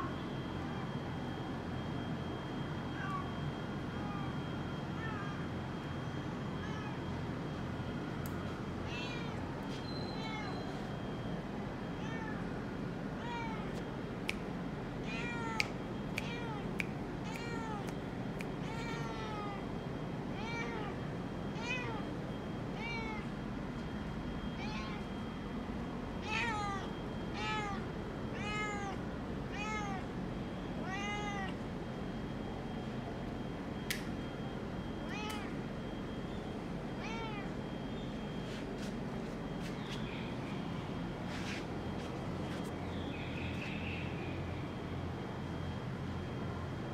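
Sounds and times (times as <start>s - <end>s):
cat meowing: 5.0s - 5.4s, 6.6s - 7.0s, 8.9s - 9.4s, 10.1s - 10.7s, 12.0s - 12.5s, 13.2s - 13.8s, 15.0s - 17.9s, 18.6s - 19.6s, 20.4s - 21.0s, 21.6s - 22.1s, 22.8s - 23.3s, 24.6s - 25.1s, 26.2s - 30.1s, 30.8s - 31.6s, 35.1s - 35.5s, 37.0s - 37.5s
sharp clicks: 33.9s - 34.1s.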